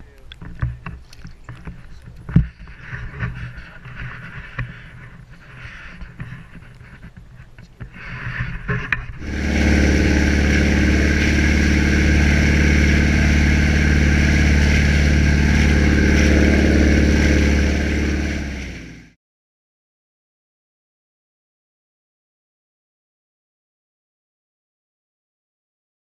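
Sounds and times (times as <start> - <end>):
engine droning: 9.2 - 19.2.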